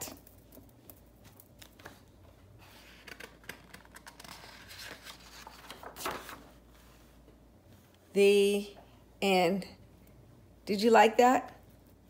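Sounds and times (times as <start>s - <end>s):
hands handling a book: 0.1s - 8.0s
page turning: 1.2s - 6.9s.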